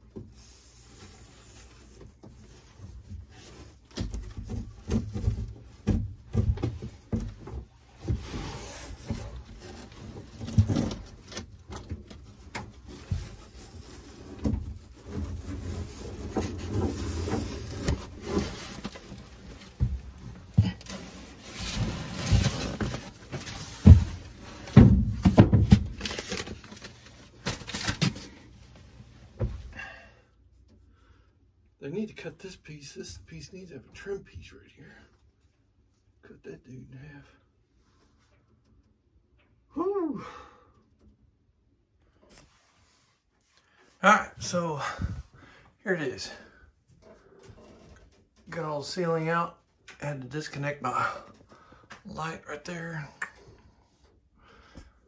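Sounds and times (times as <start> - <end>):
ceiling panel scraping and creaking: 0.0 - 29.0, 46.2 - 49.2.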